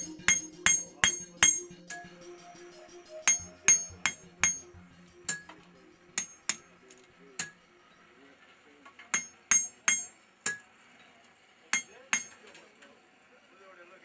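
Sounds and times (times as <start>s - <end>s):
hammer striking blade on anvil: 0.0s - 7.6s, 9.0s - 10.7s, 11.7s - 12.6s.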